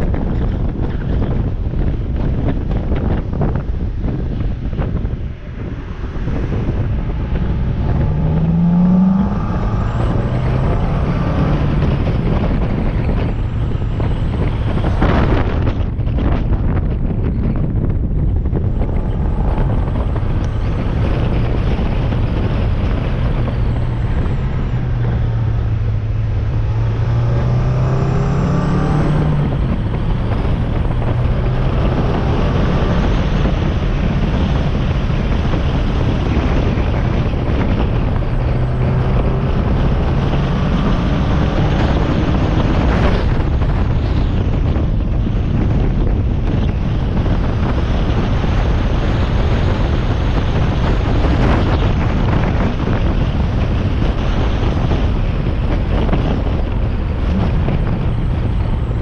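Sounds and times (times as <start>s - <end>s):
car engine revving: 0.0s - 59.0s
wind rushing over microphone: 0.0s - 59.0s.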